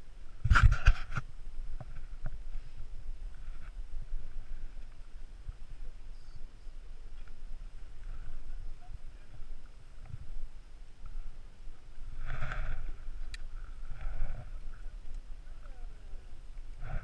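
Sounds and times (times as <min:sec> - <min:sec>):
wind rumble on microphone: 0:00.0 - 0:17.0
microphone handling noise: 0:00.4 - 0:04.8, 0:12.0 - 0:14.9.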